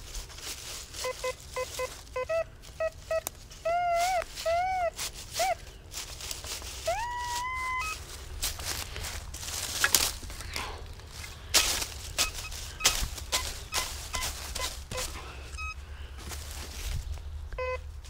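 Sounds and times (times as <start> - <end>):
metal detector tones: 1.0 - 5.6, 6.8 - 8.2, 11.6 - 15.8, 17.5 - 17.9.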